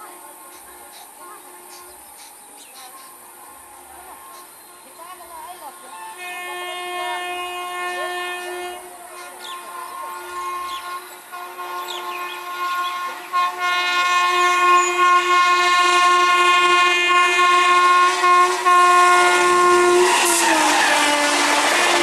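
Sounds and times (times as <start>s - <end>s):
train air horn blast: 5.9s - 22.0s.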